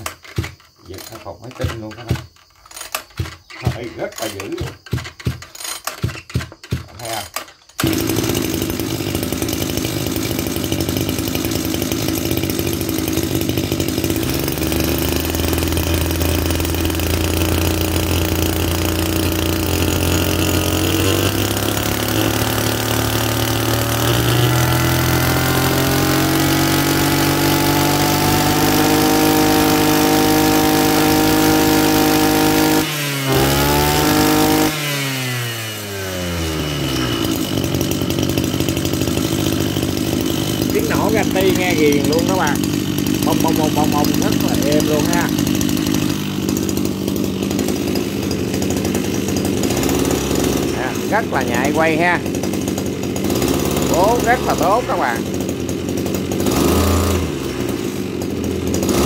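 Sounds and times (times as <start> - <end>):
brush cutter engine running: 0.0 - 59.0.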